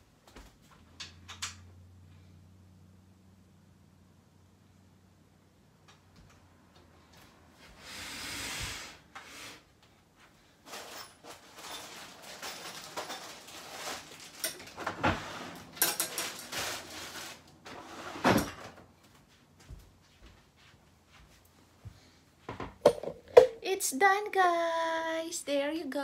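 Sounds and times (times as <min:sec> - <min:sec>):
rustling: 0:10.5 - 0:17.6.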